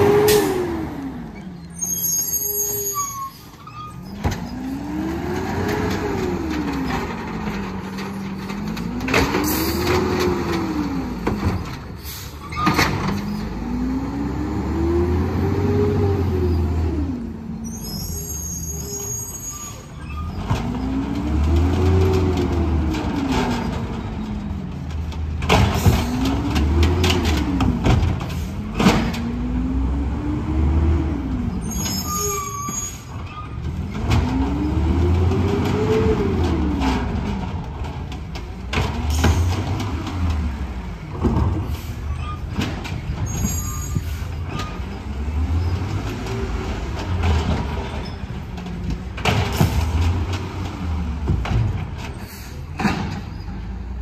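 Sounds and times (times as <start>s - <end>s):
truck engine revving: 0.0s - 1.5s, 4.1s - 11.4s, 13.0s - 17.6s, 20.3s - 31.8s, 33.6s - 41.9s
bins banging: 41.1s - 53.4s.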